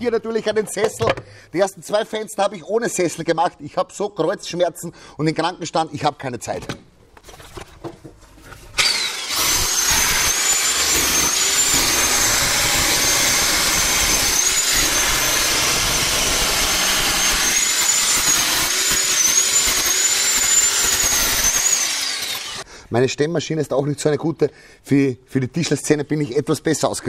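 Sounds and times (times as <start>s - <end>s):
electric chipping hammer running: 8.8s - 22.6s.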